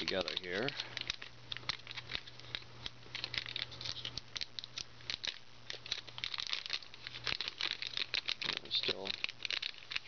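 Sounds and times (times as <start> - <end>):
plastic bags crinkling: 0.0 - 10.0.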